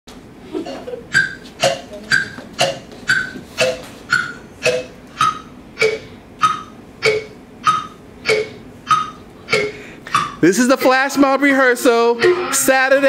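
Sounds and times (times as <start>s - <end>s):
sharp pitched ringing taps: 1.1s - 10.4s.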